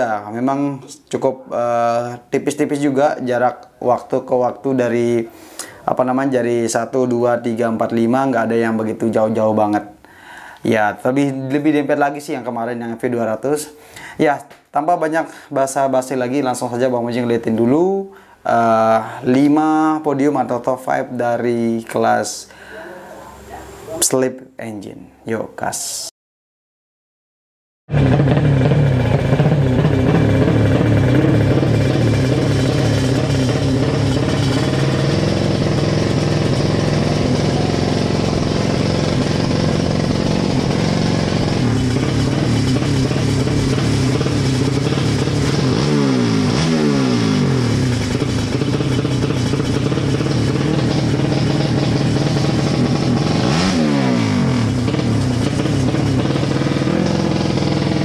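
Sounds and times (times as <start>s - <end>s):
motorcycle engine revving: 27.9s - 58.0s.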